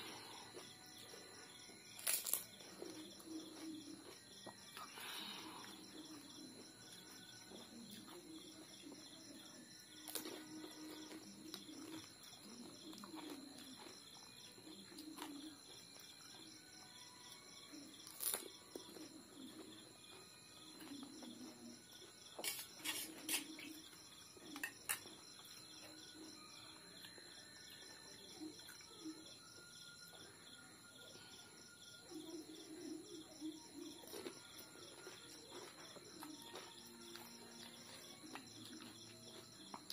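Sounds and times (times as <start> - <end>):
steady high-pitched ringing: 0.0 - 39.9
chewing crisp food: 0.1 - 16.5, 17.3 - 26.2, 33.8 - 39.9.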